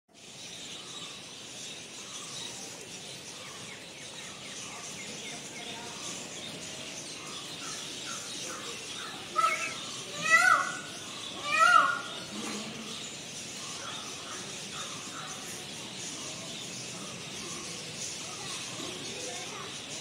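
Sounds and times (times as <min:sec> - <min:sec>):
small birds chirping: 0:00.1 - 0:20.0
steady outdoor hiss: 0:00.1 - 0:20.0
louder bird call: 0:09.2 - 0:13.0.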